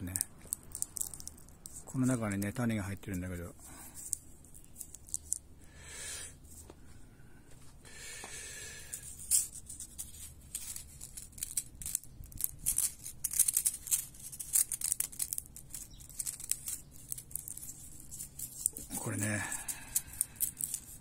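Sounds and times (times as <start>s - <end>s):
seed pod crackling open: 0.0s - 5.5s, 8.8s - 21.0s.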